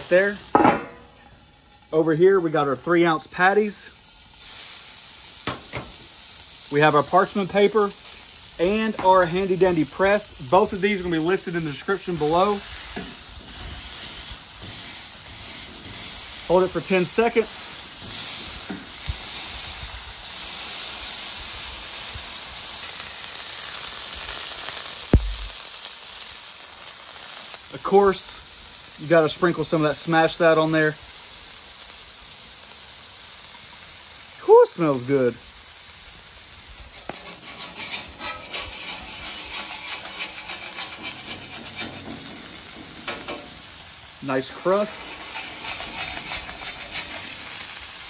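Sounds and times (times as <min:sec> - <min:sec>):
burger patties sizzling on griddle: 0:00.0 - 0:48.0
sharp knock: 0:25.1 - 0:25.5.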